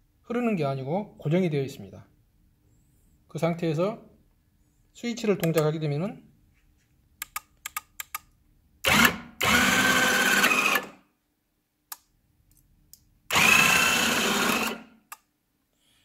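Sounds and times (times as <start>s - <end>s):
electric motor whine: 8.9s - 10.9s, 13.3s - 14.8s.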